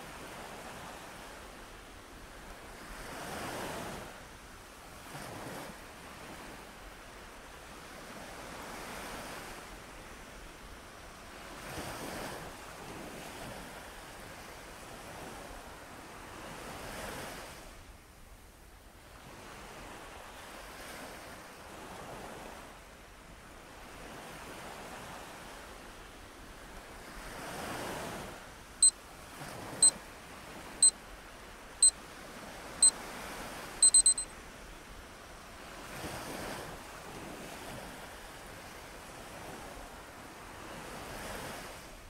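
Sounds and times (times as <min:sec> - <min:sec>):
ocean surf washing in and out: 0:00.0 - 0:42.0
short high electronic beeps: 0:33.8 - 0:34.3.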